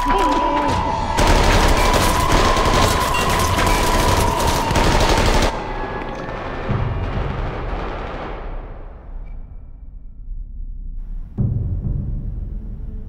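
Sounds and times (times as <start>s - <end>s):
automatic gunfire: 1.2s - 5.5s.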